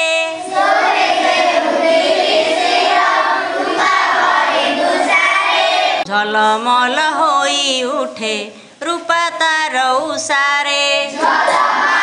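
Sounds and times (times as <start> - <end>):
children singing in unison: 0.0 - 6.1, 10.0 - 12.0.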